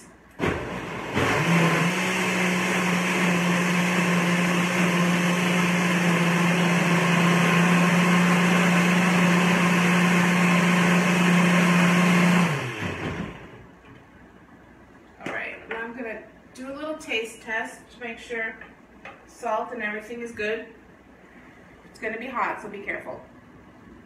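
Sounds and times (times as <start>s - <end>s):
blender motor running: 0.4s - 13.6s.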